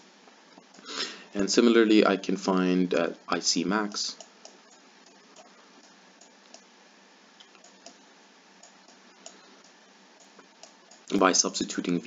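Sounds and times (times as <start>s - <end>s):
low hiss: 0.0s - 12.0s.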